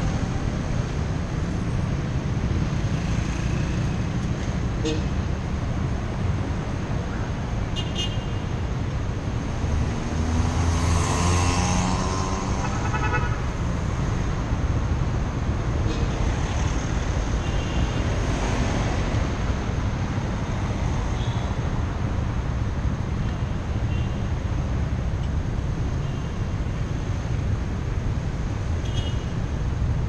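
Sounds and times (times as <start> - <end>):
low traffic rumble: 0.0 - 30.0
cars driving: 8.4 - 28.8.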